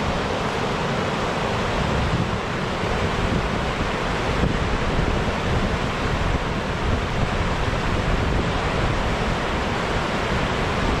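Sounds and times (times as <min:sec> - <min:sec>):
river rushing over weir: 0:00.0 - 0:11.0
wind rumbling on microphone: 0:00.0 - 0:11.0.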